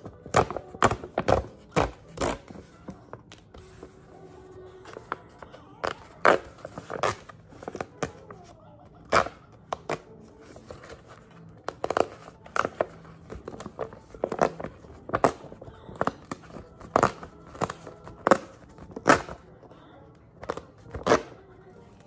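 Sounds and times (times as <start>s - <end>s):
paper rustling: 0.0s - 8.6s
paper tearing: 4.9s - 19.5s.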